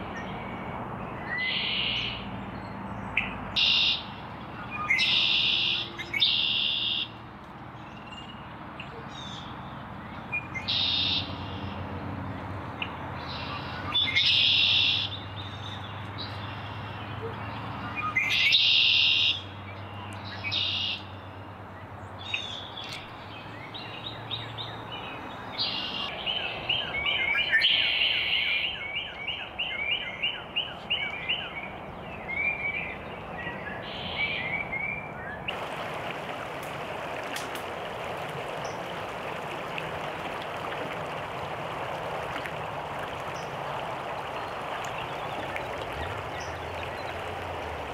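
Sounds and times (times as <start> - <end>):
stream running over stones: 35.5 - 47.9.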